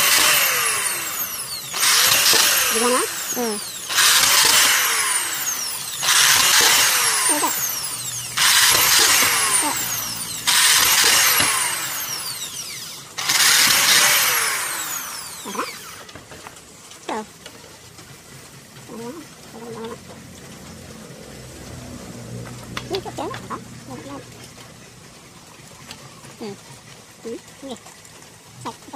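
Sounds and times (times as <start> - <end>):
electric drill spinning up and winding down: 0.0 - 16.3.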